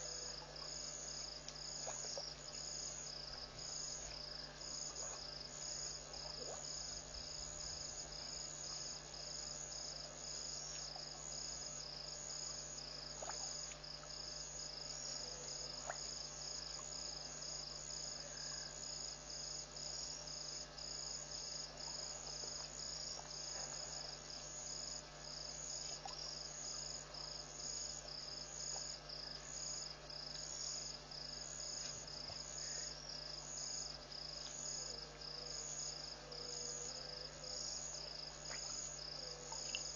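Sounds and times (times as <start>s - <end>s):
night insects trilling: 0.0s - 39.9s.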